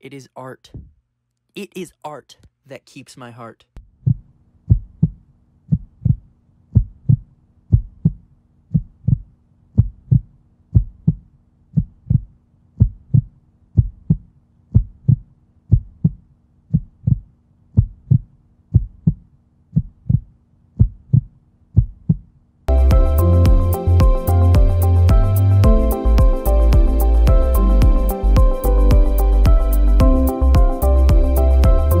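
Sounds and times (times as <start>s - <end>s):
heartbeat double thump: 3.8s - 11.2s, 11.8s - 14.2s, 14.8s - 17.2s, 17.8s - 19.2s, 19.8s - 22.2s.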